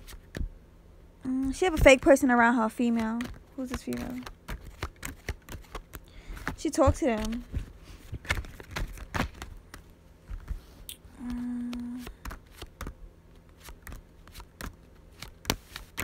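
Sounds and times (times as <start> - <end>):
woman humming: 1.2 - 1.7, 10.9 - 12.2.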